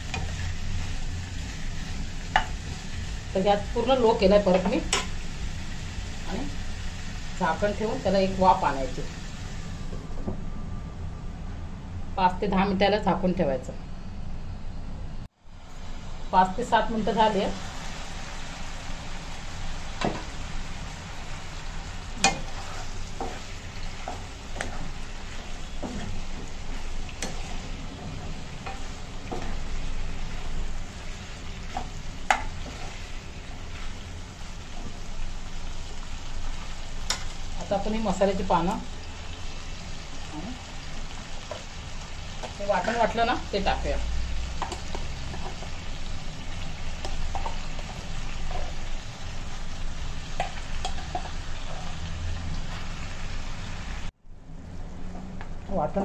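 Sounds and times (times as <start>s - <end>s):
chicken sizzling in a pan: 0.0s - 9.8s, 16.9s - 54.1s.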